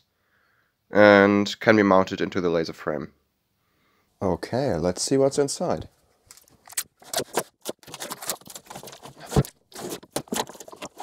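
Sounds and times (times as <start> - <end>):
cardboard scraping and rustling: 6.4 - 11.0
knife slitting tape and cardboard: 6.7 - 11.0.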